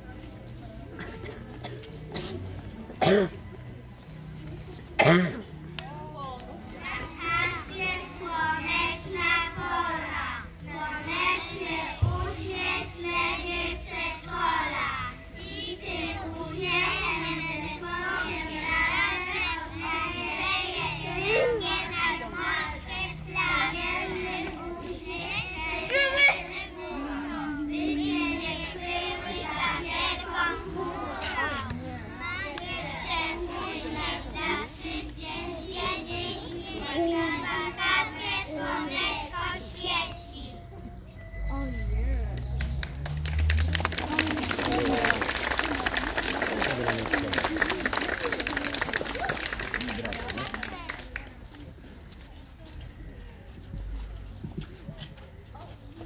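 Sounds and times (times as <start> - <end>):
children singing in unison: 7.2 - 40.2.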